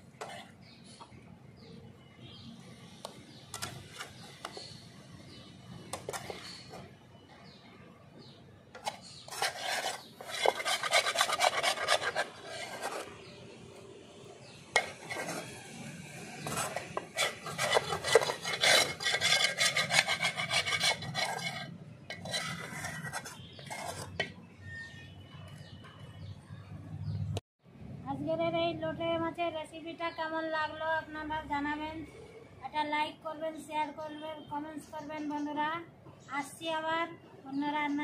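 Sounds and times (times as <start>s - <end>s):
metal spatula scraping a wok: 8.8s - 13.3s, 14.7s - 24.9s.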